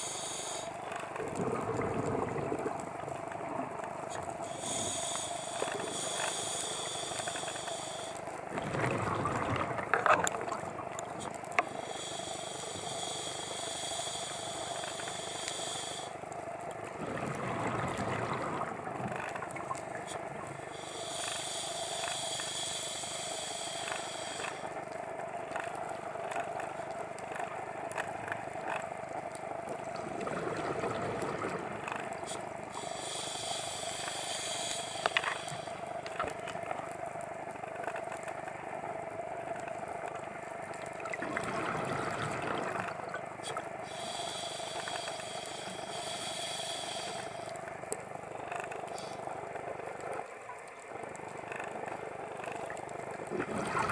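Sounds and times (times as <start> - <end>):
regulator hiss underwater: 0.0 - 0.9, 4.1 - 8.2, 11.1 - 16.2, 20.1 - 24.8, 32.2 - 36.4, 43.4 - 49.2
underwater water noise: 0.0 - 53.9
gurgle of exhaled bubbles: 1.3 - 3.8, 8.5 - 9.8, 17.0 - 18.8, 41.0 - 43.1, 53.3 - 53.9.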